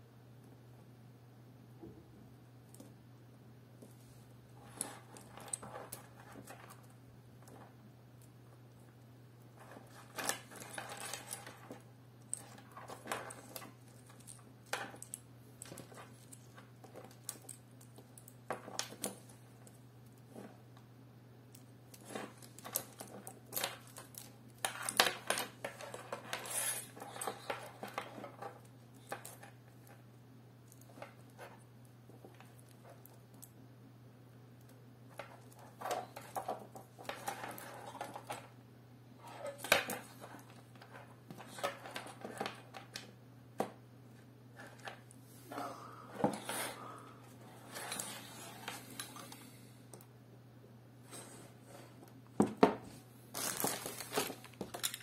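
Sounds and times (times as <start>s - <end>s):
plastic connectors clicking and clattering: 53.4s - 55.0s.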